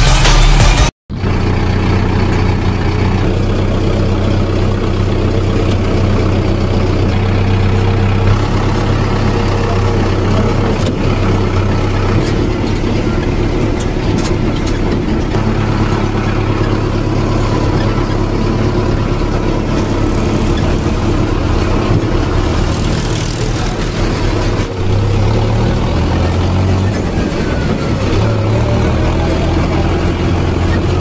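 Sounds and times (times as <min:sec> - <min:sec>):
tractor engine idling: 0:00.0 - 0:31.0.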